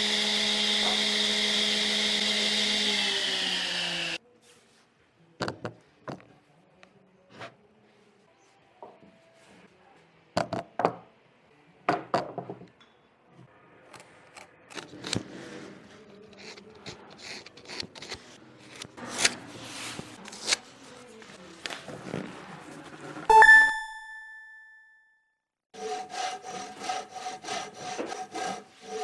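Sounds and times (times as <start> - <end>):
scraping on wood: 26.1 - 29.0.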